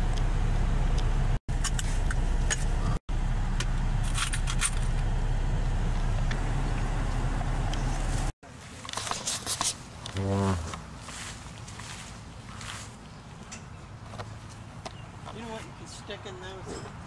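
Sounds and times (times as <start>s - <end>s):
car engine rumble from inside cabin: 0.0s - 8.4s.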